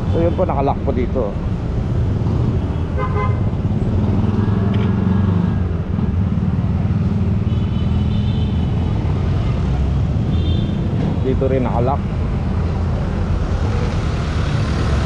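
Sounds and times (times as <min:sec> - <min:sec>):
car horn toot: 0:03.0 - 0:03.4.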